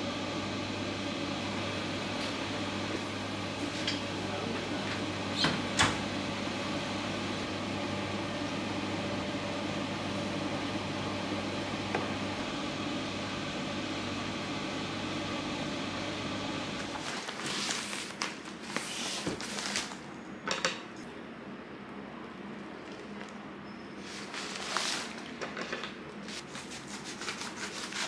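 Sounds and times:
machines and ventilation humming: 0.0 - 28.0
rustling handling noises: 16.8 - 20.1, 24.0 - 28.0.

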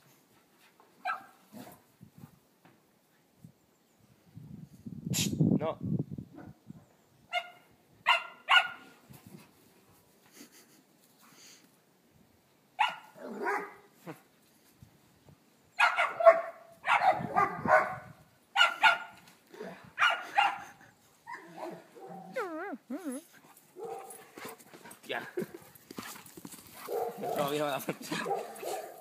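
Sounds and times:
dog barking: 1.0 - 1.4, 7.3 - 8.8, 12.8 - 13.9, 15.8 - 19.2, 20.0 - 20.7, 23.8 - 24.2, 26.8 - 29.0.

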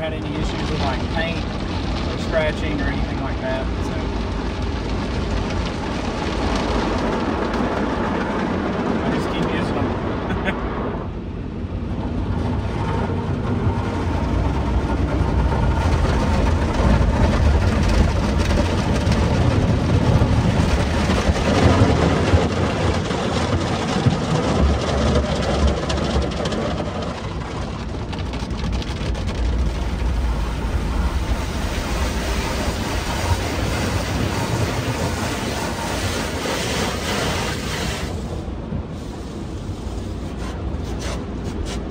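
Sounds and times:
car wash machinery rumbling: 0.0 - 41.9
water and soap spraying: 31.1 - 41.9.

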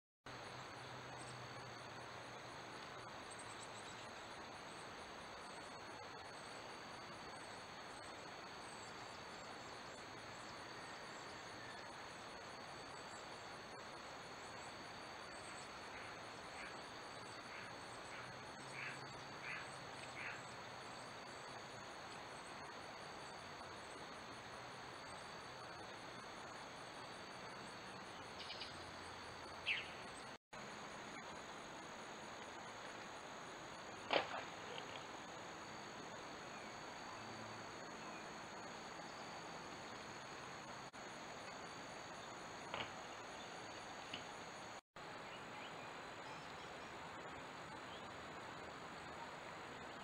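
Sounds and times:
insect chorus trilling: 0.3 - 49.2
microphone hiss: 0.3 - 50.0
bird calls: 28.2 - 28.8, 29.6 - 30.3.

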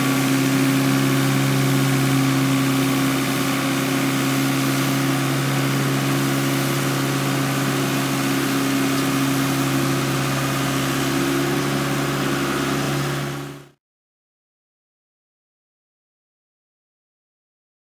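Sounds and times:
sweeper engine droning: 0.0 - 13.8.

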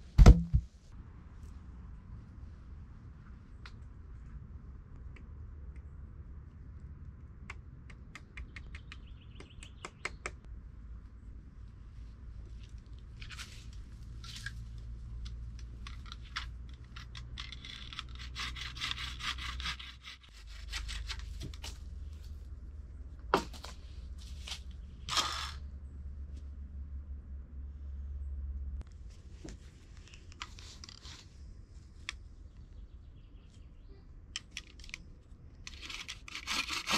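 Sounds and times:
sharp knocks: 0.1 - 0.7
pole scraping dry earth: 23.8 - 25.7, 35.7 - 36.9.

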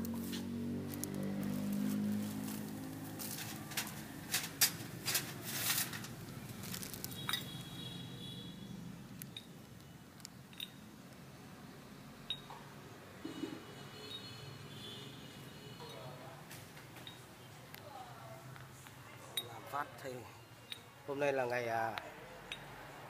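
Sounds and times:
rustling and clicking of handled parts: 0.0 - 7.6.

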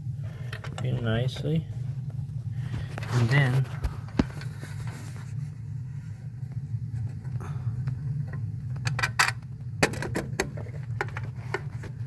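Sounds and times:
steady low hum: 0.0 - 12.0
metal clicks and rattles: 8.8 - 11.3.

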